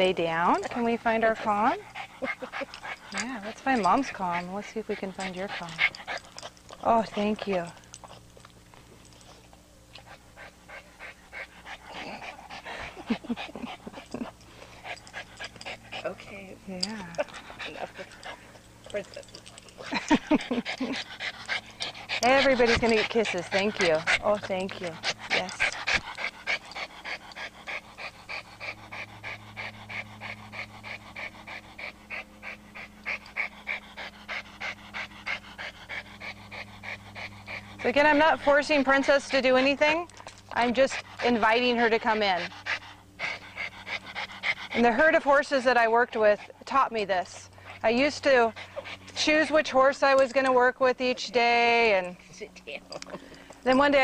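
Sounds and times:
steady low hum: 0.0 - 54.0
small dog panting quickly: 0.3 - 8.2, 10.0 - 16.4, 17.1 - 52.3.

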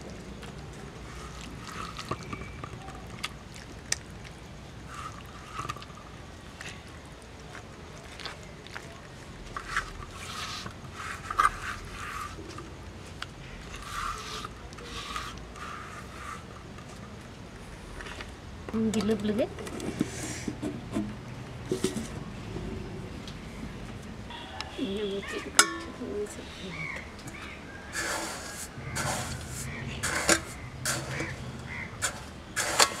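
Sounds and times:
hands squelching wet paste: 0.0 - 16.6, 26.8 - 33.0.

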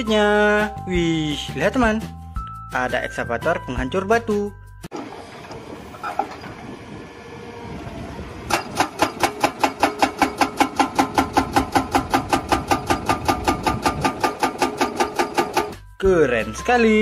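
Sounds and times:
excavator engine running: 4.9 - 15.9
hydraulic breaker hammering rock: 8.5 - 15.8.

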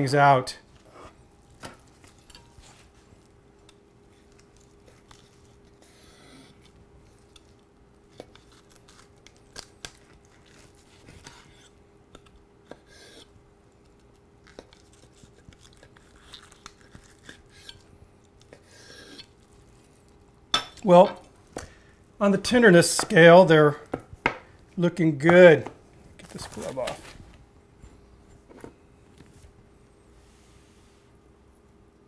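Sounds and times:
faint steady hum: 0.0 - 32.0
meat tearing and rustling: 1.5 - 5.8, 6.5 - 11.8, 13.9 - 18.6.

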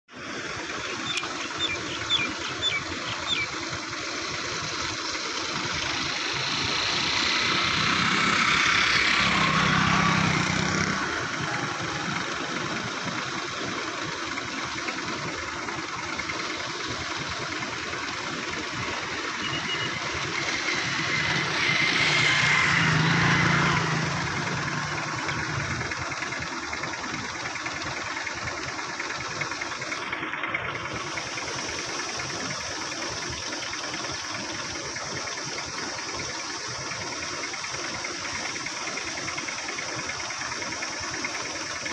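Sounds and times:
vehicles passing by: 0.2 - 16.6, 17.2 - 28.2.

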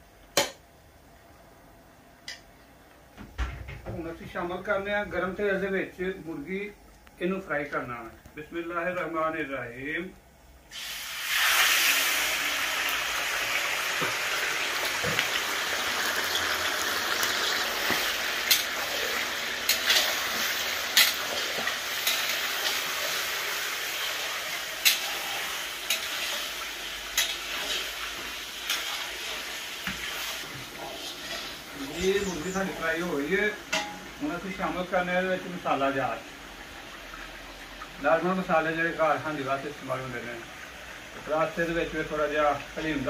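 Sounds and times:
chicken sizzling in hot oil: 10.7 - 43.0.

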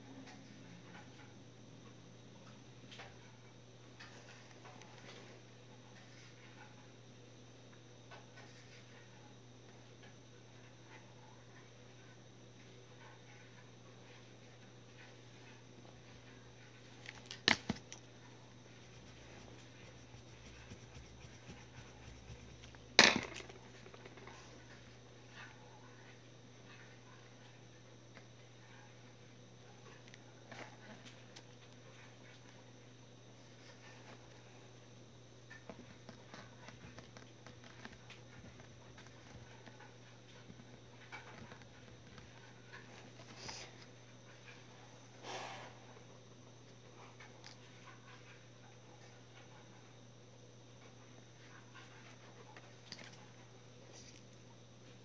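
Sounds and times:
steady low hum: 0.0 - 55.0
writing scratching on paper: 18.8 - 22.8.

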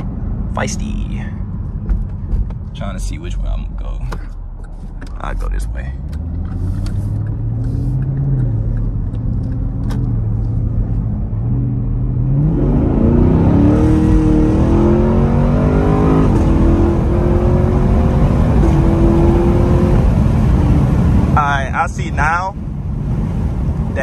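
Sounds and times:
car engine accelerating: 0.0 - 21.8
gear shifts: 3.7 - 11.2.

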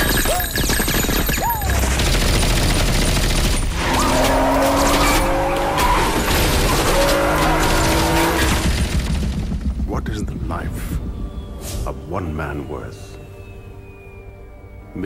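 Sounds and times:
rapid gunfire: 0.0 - 5.2, 6.0 - 9.9
car engine revving hard: 3.8 - 8.6.

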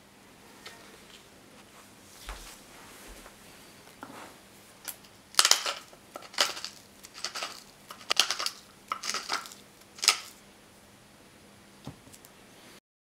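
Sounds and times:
pepper mill crunching: 4.8 - 10.4.

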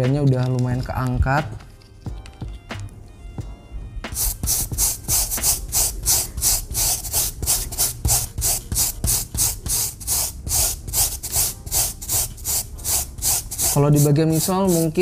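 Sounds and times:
brush scrubbing a sneaker: 4.1 - 15.0.

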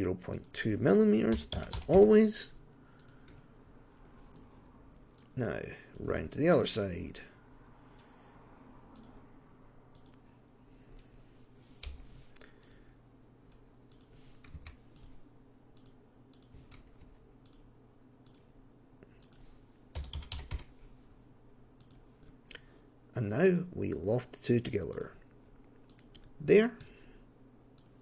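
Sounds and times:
faint low hum: 0.0 - 28.0
computer mouse clicks: 3.0 - 3.4, 8.9 - 9.2, 9.9 - 10.2, 12.6 - 12.8, 13.5 - 18.5, 21.8 - 22.0, 25.8 - 26.9, 27.7 - 28.0.

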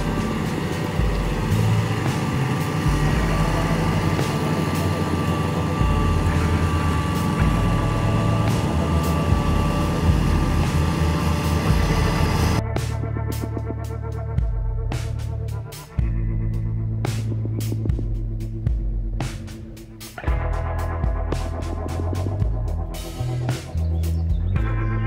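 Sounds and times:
thin whine: 0.0 - 13.0
road-building machines: 0.0 - 13.5
paver diesel engine running: 0.0 - 25.0.

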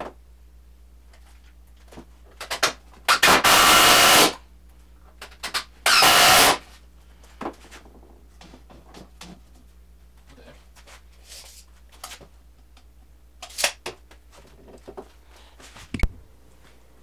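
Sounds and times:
power drill driving screws: 3.1 - 4.4, 5.9 - 6.6.

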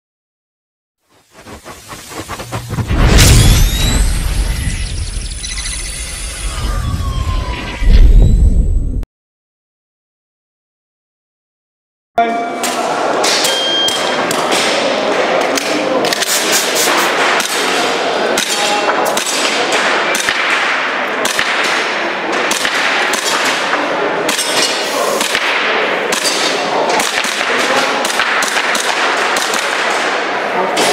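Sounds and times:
shot timer beep: 13.4 - 14.2.

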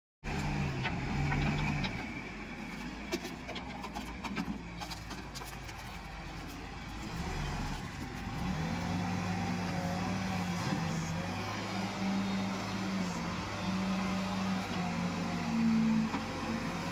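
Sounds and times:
backhoe diesel engine running: 0.2 - 16.9.

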